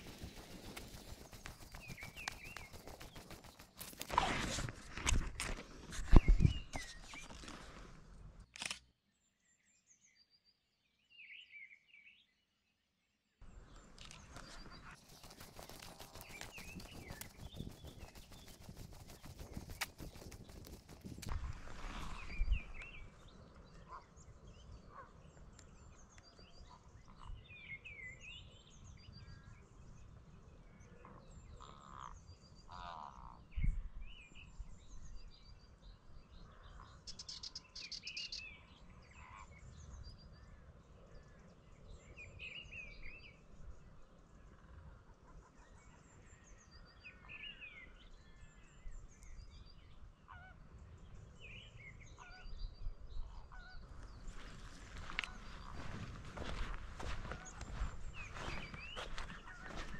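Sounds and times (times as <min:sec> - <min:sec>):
rapid clicks: 0:00.0 - 0:04.1, 0:15.0 - 0:21.3.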